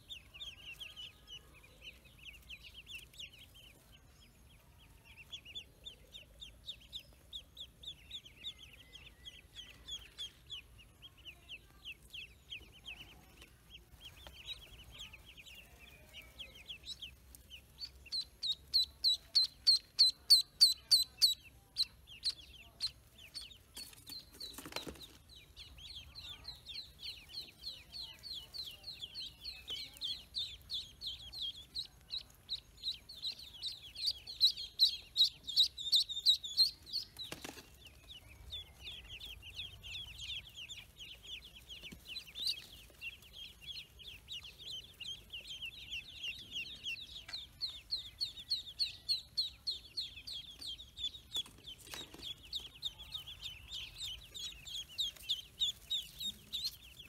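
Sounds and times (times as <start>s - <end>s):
ducklings peeping: 0.0s - 57.0s.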